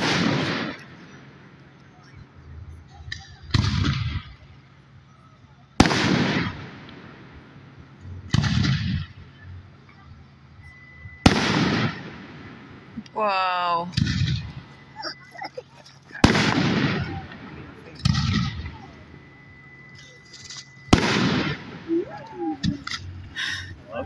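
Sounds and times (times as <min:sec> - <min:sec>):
firework shells bursting: 0:11.2 - 0:13.1, 0:15.7 - 0:21.9.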